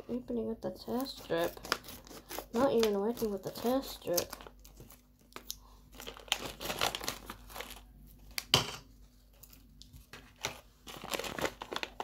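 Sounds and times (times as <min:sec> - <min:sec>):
scissors cutting plastic: 0:00.9 - 0:07.8
plastic bag crinkling: 0:01.0 - 0:08.6, 0:09.2 - 0:12.0.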